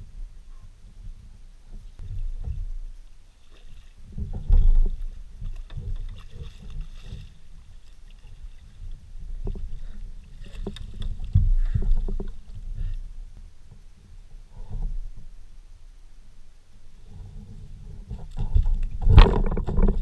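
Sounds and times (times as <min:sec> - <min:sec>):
knocks and thumps on kayak hull: 0:03.6 - 0:08.3, 0:09.2 - 0:12.8, 0:18.1 - 0:20.0.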